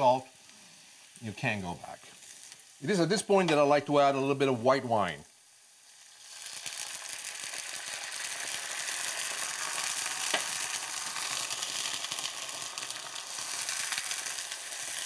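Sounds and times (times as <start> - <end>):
wine sizzling in a hot pan: 0.0 - 15.0.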